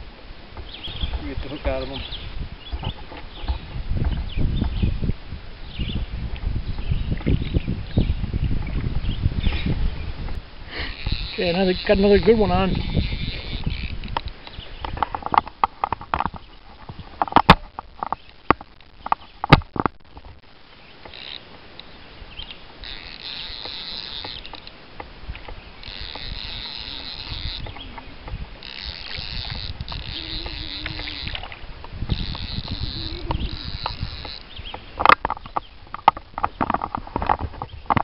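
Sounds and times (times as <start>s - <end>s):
fly reel ratchet chattering: 10.7s - 14.4s, 21.0s - 21.5s, 22.8s - 24.8s, 25.8s - 34.6s.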